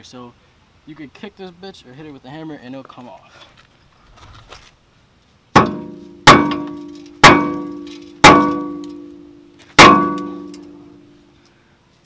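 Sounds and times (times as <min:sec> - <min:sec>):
hammer blows on ringing metal disc: 0:05.6 - 0:10.9.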